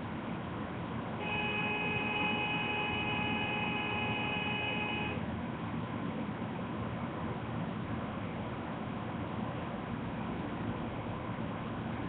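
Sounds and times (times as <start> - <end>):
steady multi-pitch tone: 1.2 - 5.2.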